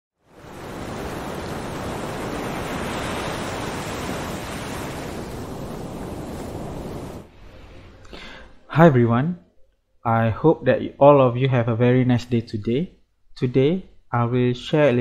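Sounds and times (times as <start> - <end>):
waves breaking: 0.2 - 8.0.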